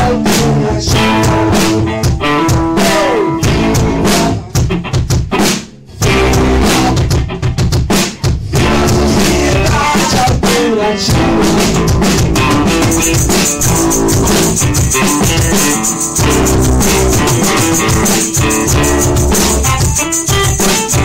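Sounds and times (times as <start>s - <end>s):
bass drum and snare: 0.0s - 21.0s
rock band playing: 0.0s - 21.0s.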